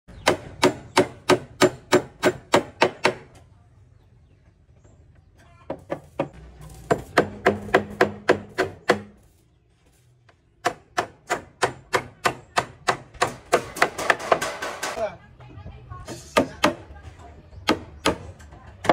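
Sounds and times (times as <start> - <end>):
hand tool hammering blows: 0.1 - 3.4, 5.6 - 9.2, 10.6 - 15.0.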